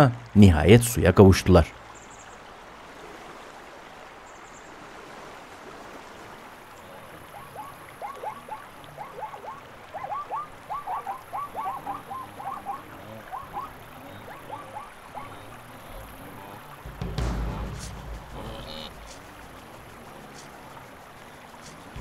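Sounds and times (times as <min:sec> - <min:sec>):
faint hiss: 0:15.4 - 0:22.0
short quick animal calls: 0:18.2 - 0:19.4.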